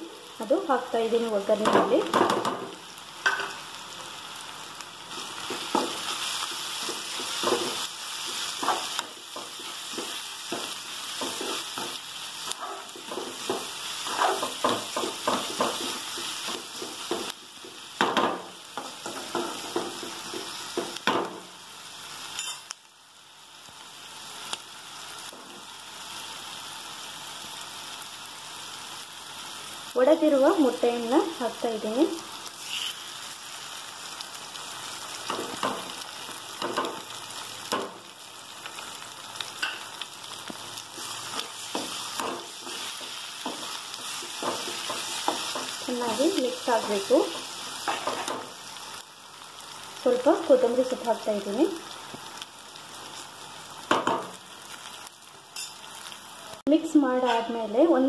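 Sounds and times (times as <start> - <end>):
vegetables sizzling in oil: 0.0 - 58.0
metal spatula scraping a pan: 12.6 - 14.7, 32.6 - 33.2.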